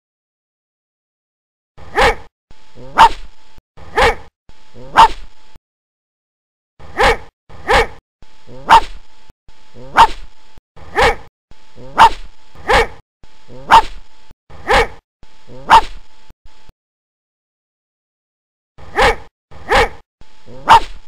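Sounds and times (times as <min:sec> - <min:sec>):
faint hum: 0:01.8 - 0:05.6, 0:06.8 - 0:16.7, 0:18.8 - 0:21.0
dog barking: 0:01.9 - 0:03.3, 0:03.9 - 0:05.3, 0:06.9 - 0:09.0, 0:09.8 - 0:10.3, 0:10.9 - 0:13.0, 0:13.6 - 0:14.0, 0:14.6 - 0:16.0, 0:18.8 - 0:21.0.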